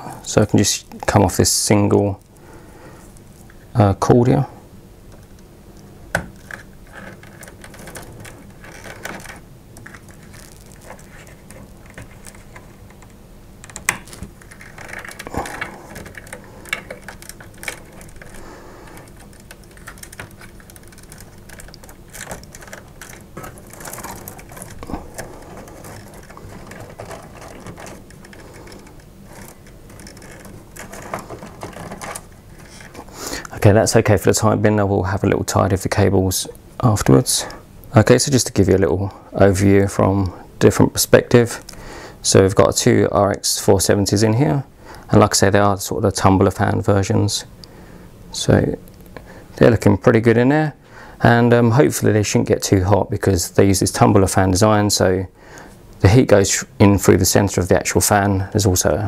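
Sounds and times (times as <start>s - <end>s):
rustling of cables: 0.0s - 38.7s, 39.5s - 43.4s
clicks and knocks of connectors: 5.1s - 33.1s.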